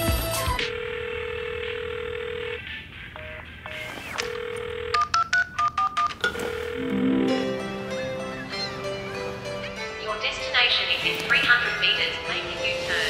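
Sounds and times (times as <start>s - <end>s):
telephone dial tone: 0.7s - 2.6s, 3.2s - 7.1s.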